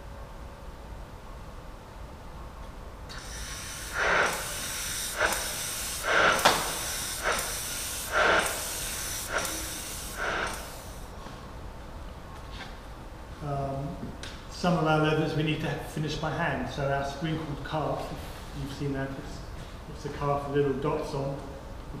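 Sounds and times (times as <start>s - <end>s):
spray gun hissing: 3.1s - 11.1s.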